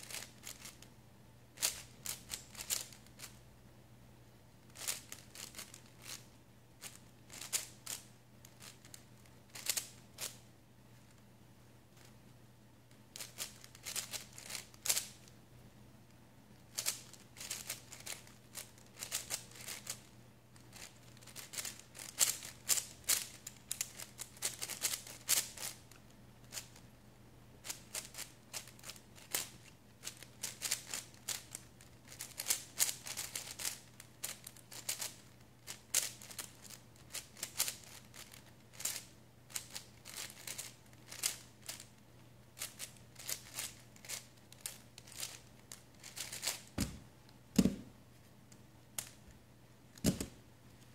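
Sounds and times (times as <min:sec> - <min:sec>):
plastic puzzle cube clacking: 0:00.0 - 0:00.9, 0:01.6 - 0:03.3, 0:04.7 - 0:06.2, 0:06.8 - 0:10.4, 0:13.1 - 0:15.3, 0:16.7 - 0:25.8, 0:27.7 - 0:42.0, 0:42.6 - 0:47.0.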